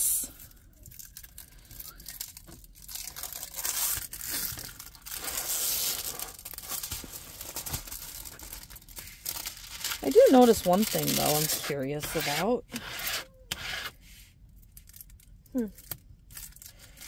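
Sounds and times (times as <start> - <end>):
canvas and plastic film crinkling: 0.7 - 12.6.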